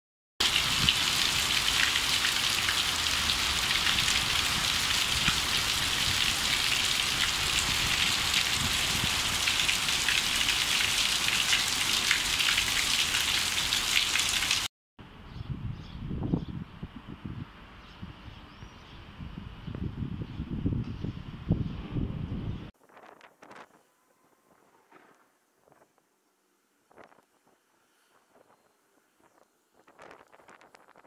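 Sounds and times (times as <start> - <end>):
heavy rain on a terrace: 0.4 - 14.7
outdoor background: 0.4 - 31.0.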